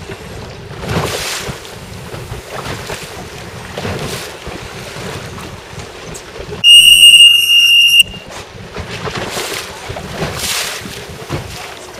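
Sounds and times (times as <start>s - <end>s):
wind buffeting microphone: 0.0s - 6.7s, 8.1s - 11.9s
water noise: 0.0s - 11.9s
horn blast: 6.6s - 8.2s.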